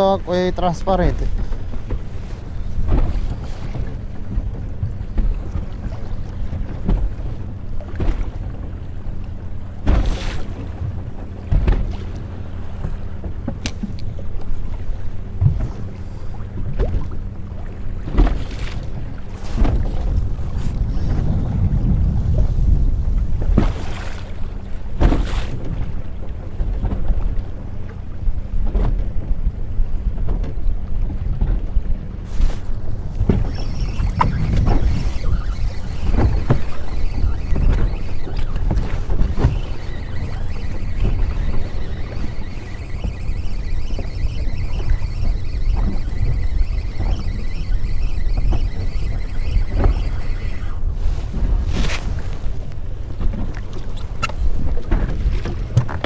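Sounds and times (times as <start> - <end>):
water slapping against hull: 0.0 - 56.0
wind buffeting microphone: 0.0 - 56.0
light water knocks: 9.8 - 14.7.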